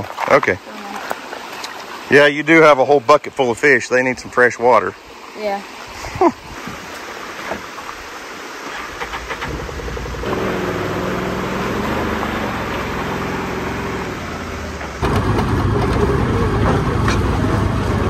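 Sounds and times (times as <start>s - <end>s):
utility vehicle engine running: 8.7s - 18.0s.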